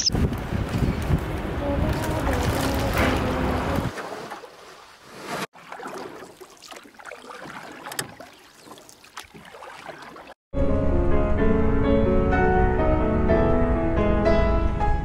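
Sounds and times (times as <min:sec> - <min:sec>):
wind rumble on microphone: 0:00.0 - 0:04.0
water sloshing in a plastic tub: 0:02.3 - 0:10.4.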